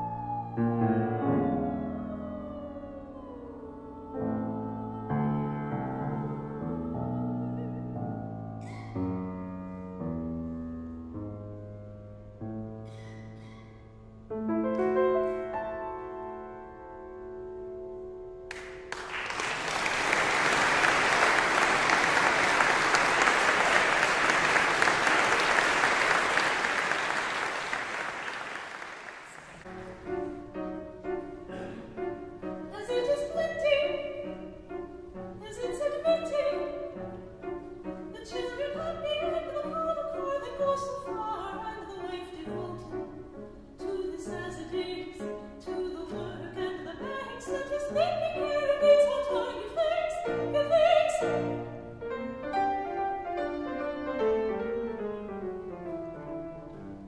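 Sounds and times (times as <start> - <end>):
piano accompaniment: 0.0 - 27.7, 29.6 - 57.0
operatic singing: 1.3 - 8.0
audience applause: 18.5 - 29.7.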